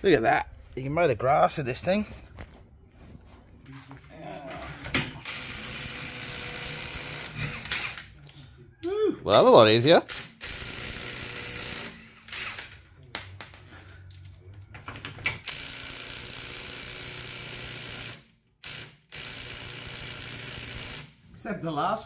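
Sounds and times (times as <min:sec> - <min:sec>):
impact driver running: 0:05.2 - 0:08.1, 0:10.1 - 0:12.0, 0:15.5 - 0:21.1.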